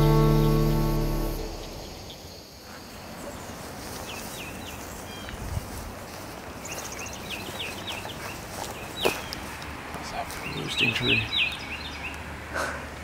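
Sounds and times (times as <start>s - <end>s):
music: 0.0s - 1.7s
songbirds chirping: 0.0s - 13.0s.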